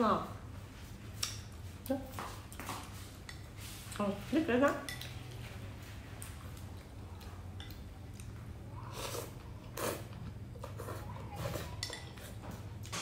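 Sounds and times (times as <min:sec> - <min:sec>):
noodles slurped and chewed: 0:06.3 - 0:12.4.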